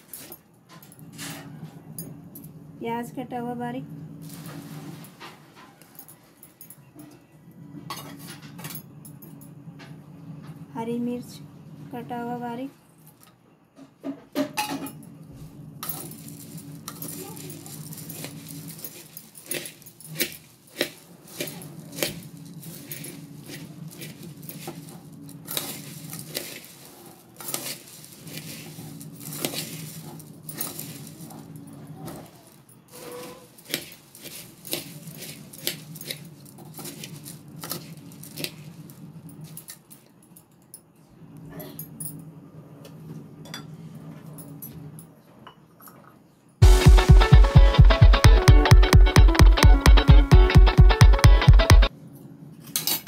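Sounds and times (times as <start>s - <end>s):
low steady hum: 0.7s - 5.3s
puffed rice rustling: 16.0s - 39.6s.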